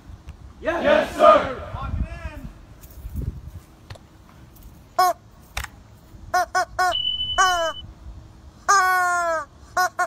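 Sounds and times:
rubber chicken squawks: 6.3s - 7.8s.

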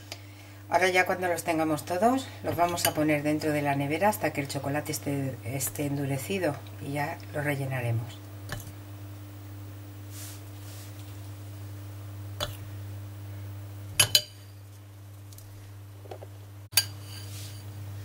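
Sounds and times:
metal spoon clinking glass bowl: 14.0s - 14.5s.

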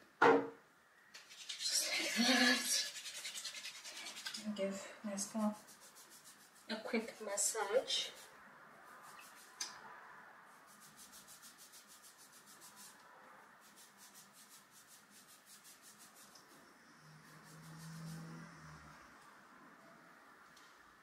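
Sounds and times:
fingertips rubbing scalp: 1.3s - 4.5s, 5.2s - 8.3s, 8.9s - 9.7s, 10.6s - 13.0s, 13.6s - 16.6s, 17.2s - 18.5s.

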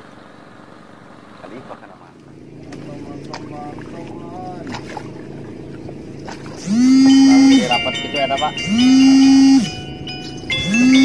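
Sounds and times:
swooping low alarm tone: 6.6s - 11.0s
jingle of high bell tones: 7.1s - 11.0s.

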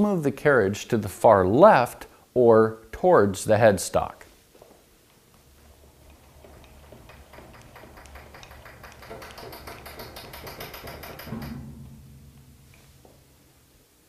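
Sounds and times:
lathe handwheel clicking: 5.1s - 11.6s.

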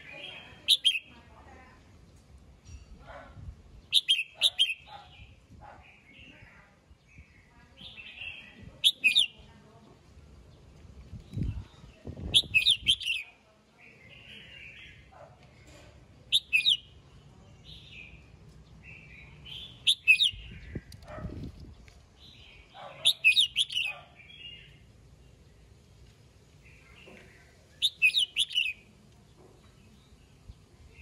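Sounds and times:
soft bird chattering: 0.0s - 1.2s, 3.9s - 6.3s, 7.2s - 9.5s, 11.4s - 13.4s, 15.6s - 17.0s, 19.3s - 21.5s, 22.4s - 24.8s, 26.7s - 29.0s
bird whistling song: 0.7s - 1.1s, 3.9s - 4.9s, 7.9s - 9.4s, 12.3s - 13.2s, 16.3s - 16.9s, 19.6s - 20.8s, 23.0s - 24.0s, 27.8s - 28.8s.

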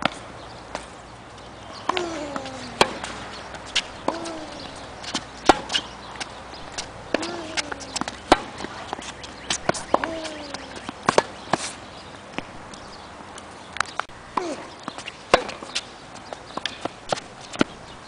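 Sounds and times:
shoes squeaking on court: 0.0s - 18.0s
tennis ball pops: 1.9s - 3.2s, 6.7s - 11.3s.

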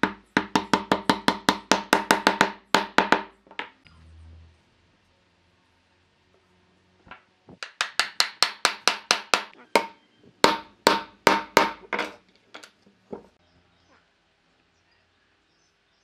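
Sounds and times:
knocks on wooden parts: 0.0s - 3.8s, 7.1s - 13.4s.

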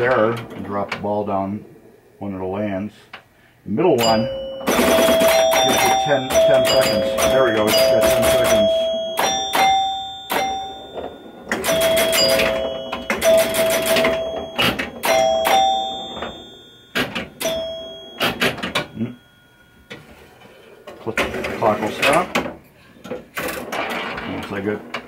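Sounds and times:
pinball mechanism clicking: 4.0s - 19.2s, 20.9s - 25.0s
pinball chime bars ringing: 4.0s - 22.4s, 23.6s - 24.6s.

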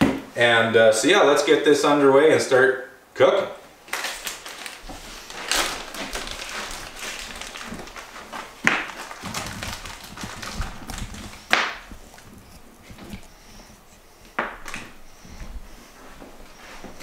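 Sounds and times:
plastic bag crinkling: 3.9s - 15.2s.

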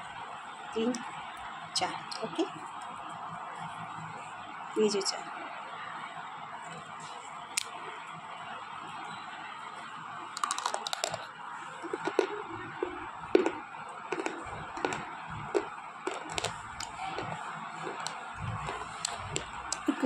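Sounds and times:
slate pencil crunching between teeth: 10.4s - 11.2s, 11.9s - 19.9s.

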